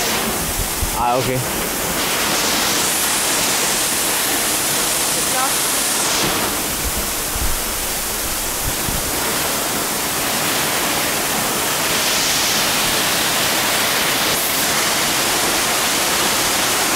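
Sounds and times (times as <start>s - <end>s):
waterfall rushing and splashing: 0.0s - 16.9s.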